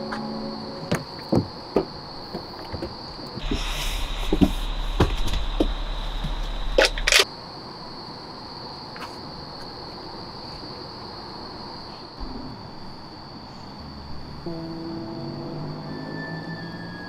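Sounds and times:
high-pitched drone: 0:00.0 - 0:01.3, 0:03.4 - 0:07.2
low hum: 0:03.4 - 0:07.2.

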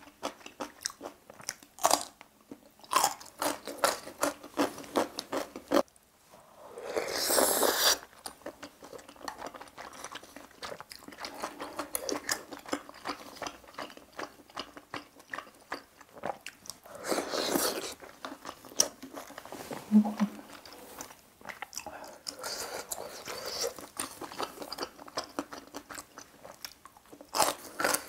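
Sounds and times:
noodle slurp: 0:06.8 - 0:08.1.

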